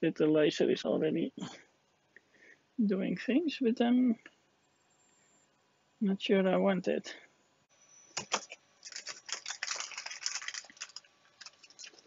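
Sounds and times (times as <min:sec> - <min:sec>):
plastic packaging crinkling: 0:08.2 - 0:12.0.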